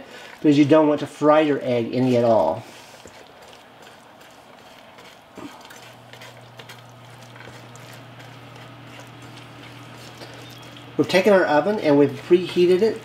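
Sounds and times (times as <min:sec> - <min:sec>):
spatula scraping a skillet: 0:00.0 - 0:13.0
steady low hum: 0:00.0 - 0:13.0.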